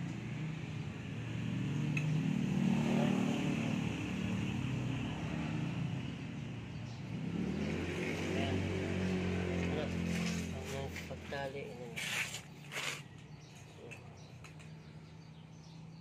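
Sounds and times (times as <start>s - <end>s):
vehicle engine running: 6.6s - 13.6s.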